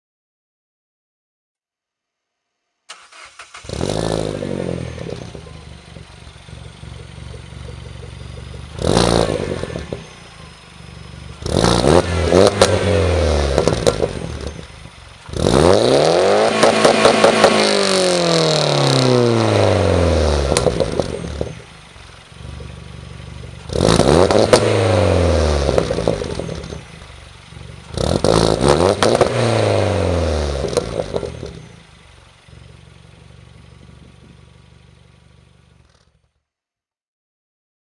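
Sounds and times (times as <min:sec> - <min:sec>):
car engine revving: 0:02.9 - 0:36.0
exhaust crackles: 0:02.9 - 0:36.2.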